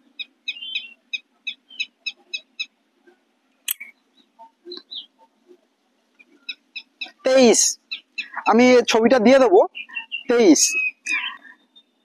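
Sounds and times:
small bird chirping: 0:00.0 - 0:05.6, 0:06.2 - 0:12.0
sharp click: 0:03.7 - 0:03.9.

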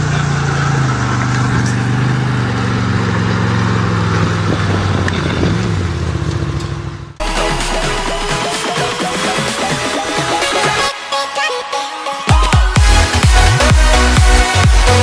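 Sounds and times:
utv engine running: 0:00.0 - 0:07.2
electronic dance music: 0:07.2 - 0:15.0.

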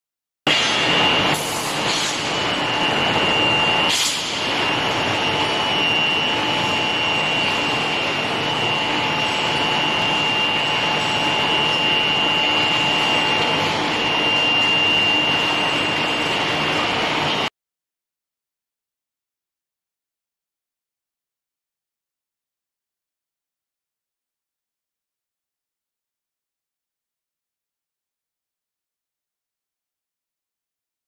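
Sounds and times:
high machine whine: 0:00.5 - 0:17.5
machine drone: 0:00.5 - 0:17.5.

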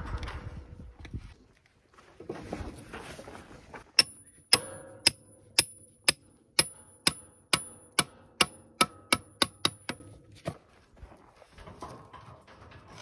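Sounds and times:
hammer striking with metallic ring: 0:04.0 - 0:10.1.

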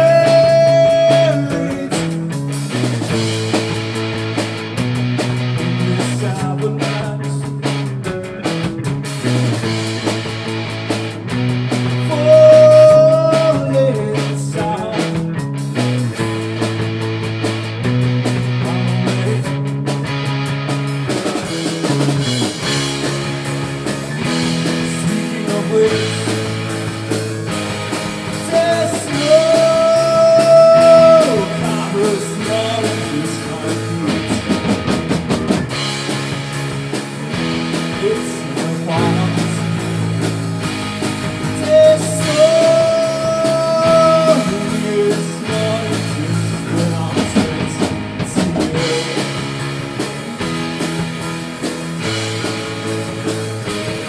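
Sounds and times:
male lead vocals: 0:00.0 - 0:03.6, 0:05.5 - 0:08.9, 0:11.9 - 0:15.8, 0:18.4 - 0:19.7, 0:21.3 - 0:35.1, 0:37.2 - 0:40.6, 0:41.3 - 0:50.2
bass guitar: 0:00.0 - 0:54.0
drum kit: 0:00.0 - 0:54.0
electric guitar: 0:00.0 - 0:54.0.

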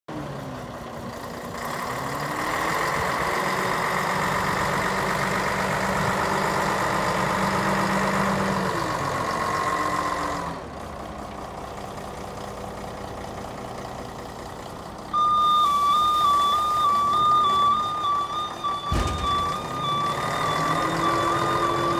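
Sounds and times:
diesel truck engine running: 0:00.1 - 0:21.9
loud electronic tone: 0:15.2 - 0:21.9.

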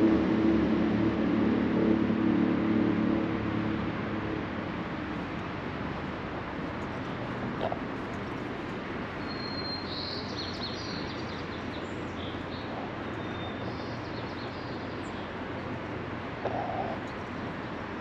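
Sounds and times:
distant traffic: 0:00.0 - 0:18.0
small birds chirping: 0:06.6 - 0:18.0.

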